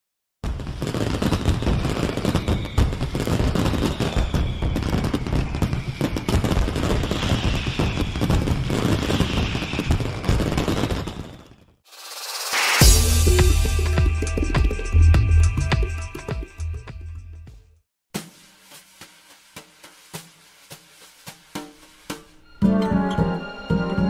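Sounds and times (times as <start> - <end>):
fireworks bursting and crackling: 0.4 - 13.8, 18.2 - 22.4
short rising whoosh: 11.9 - 14.4.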